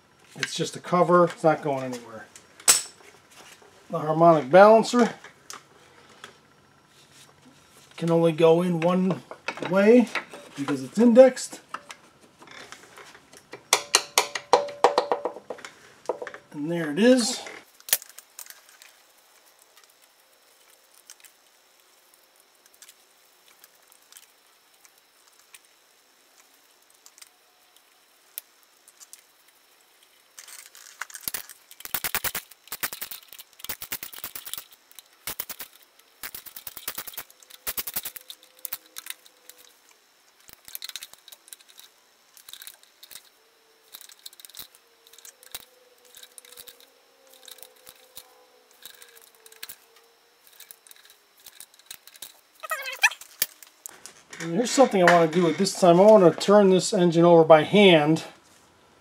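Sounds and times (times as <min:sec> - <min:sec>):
hand ratchet clicking: 0:31.1 - 0:39.7.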